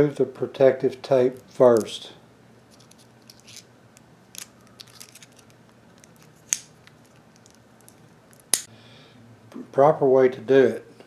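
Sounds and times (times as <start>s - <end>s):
tape peeling with crackling clicks: 2.7s - 8.7s.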